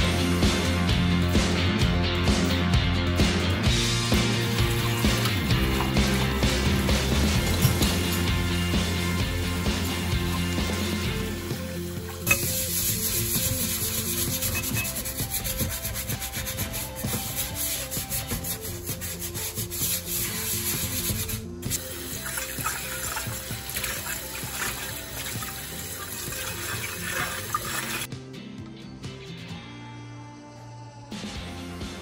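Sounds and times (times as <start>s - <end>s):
tap water running: 4.0s - 18.6s, 19.8s - 28.1s
sponge scraping on dishes: 12.0s - 21.4s.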